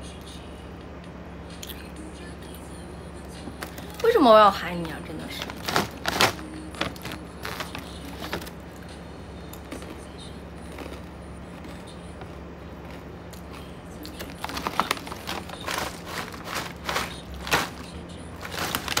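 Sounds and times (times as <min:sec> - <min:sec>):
low background hum: 0:00.0 - 0:19.0
plastic packaging crinkling: 0:03.6 - 0:04.4, 0:05.2 - 0:08.6, 0:10.7 - 0:19.0.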